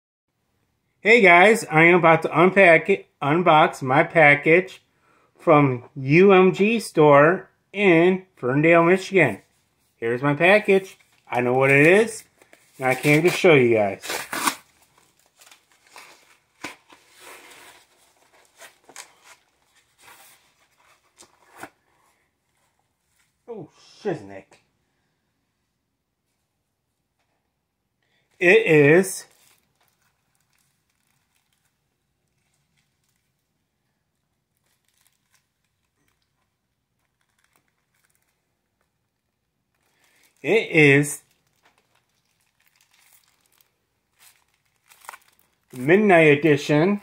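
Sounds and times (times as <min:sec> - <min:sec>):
cardboard rustling and tearing: 0:10.8 - 0:21.8, 0:44.2 - 0:45.6.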